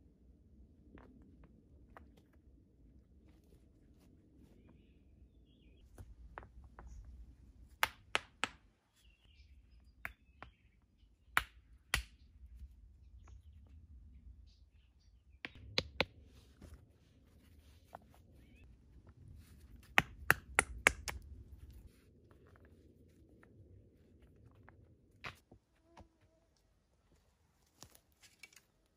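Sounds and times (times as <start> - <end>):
faint bird chirps: 18.2 - 18.7.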